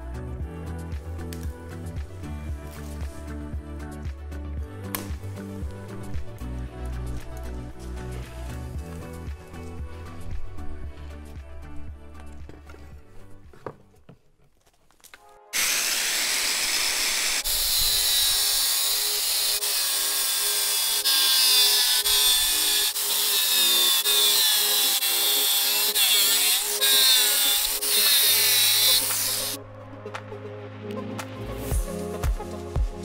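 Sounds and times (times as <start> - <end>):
angle grinder cutting metal: 15.6 - 29.6.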